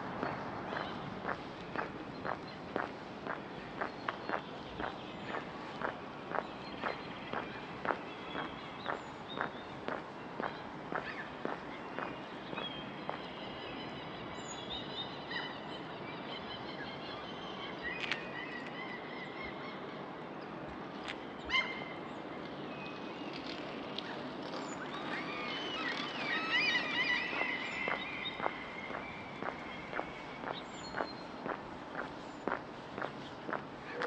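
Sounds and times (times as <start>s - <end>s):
faint footsteps on pavement: 0.0s - 13.9s, 18.0s - 18.8s, 20.6s - 21.2s, 22.4s - 34.0s
small birds chirping and singing: 0.2s - 15.2s, 23.0s - 34.0s.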